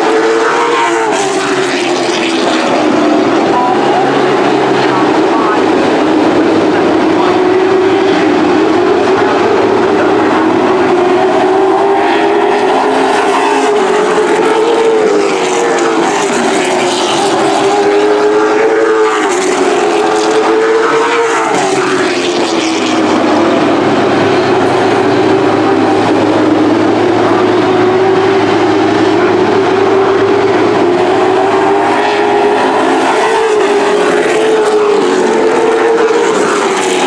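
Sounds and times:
race truck engines passing: 0:00.0 - 0:37.0.

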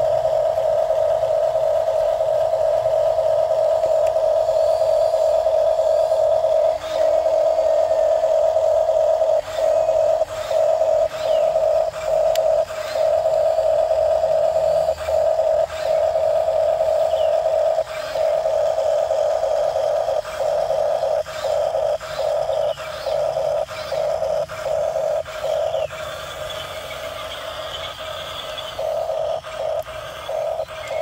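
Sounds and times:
toy electric motor whining: 0:00.0 - 0:31.0.

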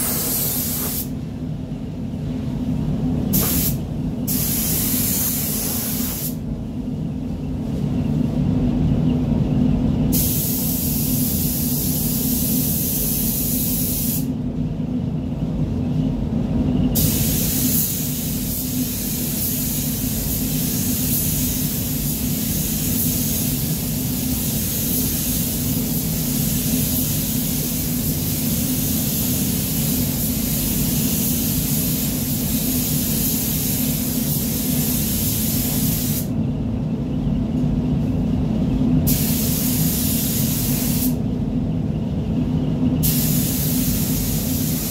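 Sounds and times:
paint spray gun hissing: 0:00.0 - 0:01.1, 0:03.3 - 0:06.4, 0:17.0 - 0:36.3, 0:39.1 - 0:41.2, 0:43.0 - 0:44.9
ventilation hum: 0:00.0 - 0:44.9.

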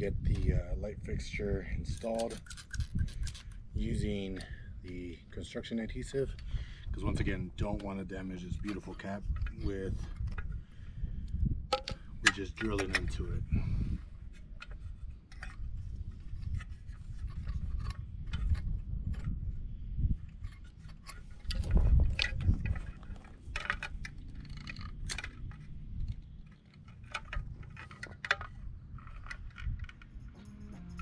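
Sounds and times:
hands handling plastic fixture: 0:11.7 - 0:13.4, 0:14.2 - 0:19.3, 0:20.3 - 0:30.4.

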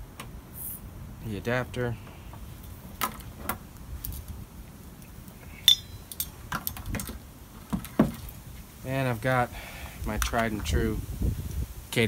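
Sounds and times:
metal fittings clicking and clinking: 0:05.7 - 0:07.1.

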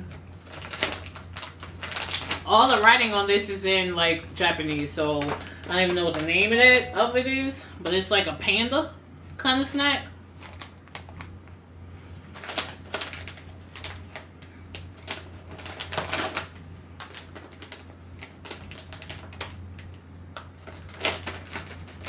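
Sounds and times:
plastic snack packet crinkling: 0:00.0 - 0:03.6, 0:04.6 - 0:06.9, 0:10.4 - 0:11.4, 0:12.3 - 0:22.0.

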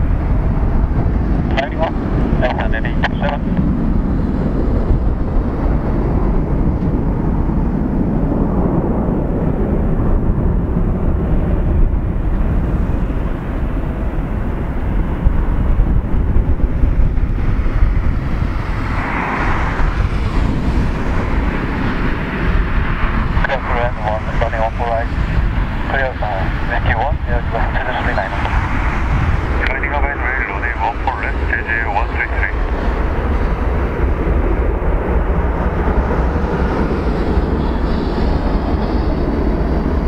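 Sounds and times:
jet engines at takeoff: 0:00.0 - 0:40.0.

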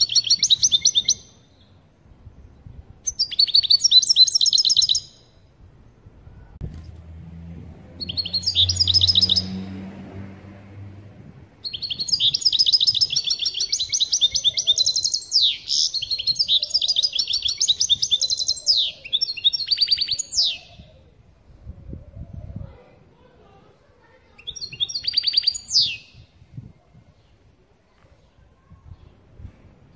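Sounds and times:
goldfinch singing: 0:00.0 - 0:01.4, 0:08.0 - 0:09.6, 0:11.6 - 0:20.8, 0:24.4 - 0:26.1.

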